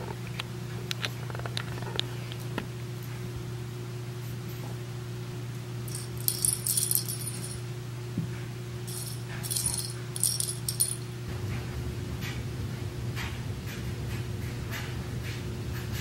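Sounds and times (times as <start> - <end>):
steady low hum: 0.0 - 16.0
small bell jingling: 5.9 - 7.6, 8.9 - 11.1.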